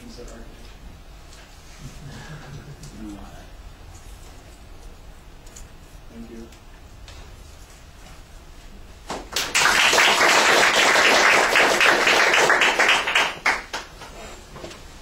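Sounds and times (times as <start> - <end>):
audience applause: 9.3 - 13.9.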